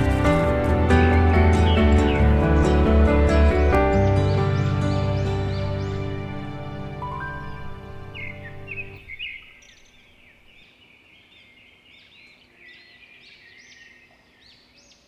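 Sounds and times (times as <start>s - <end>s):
background music: 0.0s - 9.2s
birds chirping: 0.0s - 15.0s.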